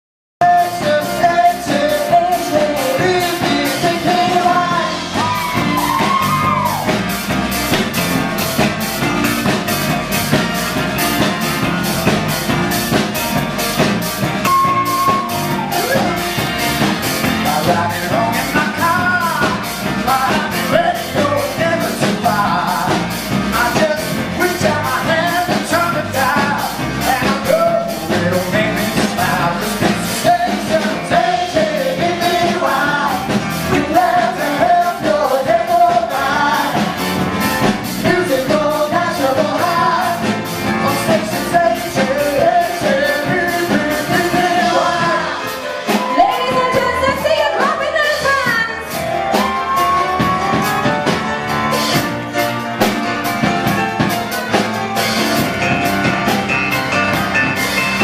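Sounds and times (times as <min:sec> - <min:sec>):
lead vocal singing: 0:00.4 - 0:07.0, 0:17.2 - 0:48.0
live pop-rock band: 0:00.4 - 0:58.0
steady drum beat: 0:00.4 - 0:58.0.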